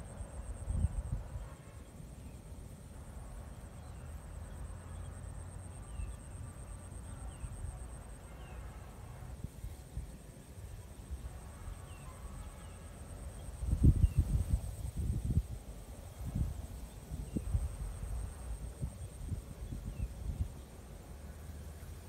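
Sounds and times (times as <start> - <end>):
wind rumble on microphone: 0.0 - 2.4, 9.2 - 22.0
high-pitched insect trill: 9.6 - 21.0.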